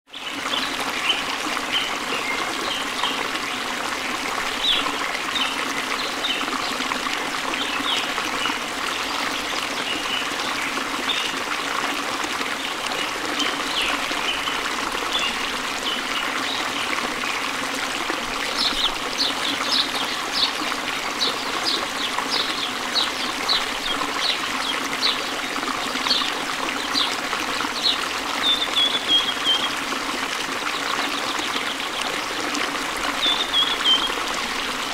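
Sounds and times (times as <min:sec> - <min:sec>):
running water rushing: 0:00.1 - 0:34.9
small birds chirping: 0:27.8 - 0:29.8.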